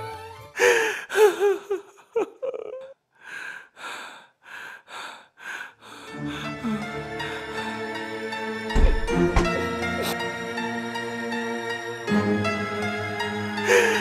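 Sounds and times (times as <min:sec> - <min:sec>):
person gasping: 0:00.6 - 0:01.6, 0:03.2 - 0:07.4, 0:13.7 - 0:14.0
heavy panting breaths: 0:03.2 - 0:07.5.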